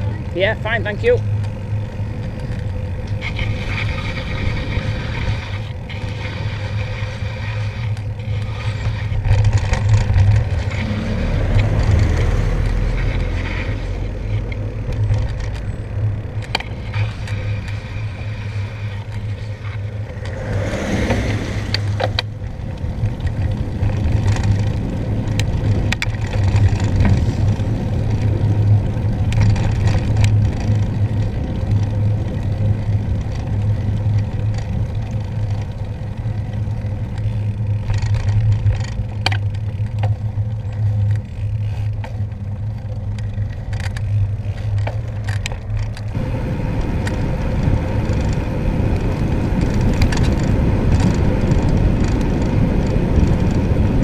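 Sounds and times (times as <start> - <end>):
bicycle tyre noise on wet road: 0.0 - 54.0
wind rushing over microphone: 16.0 - 31.7, 46.1 - 54.0
loud whoosh: 20.1 - 22.0.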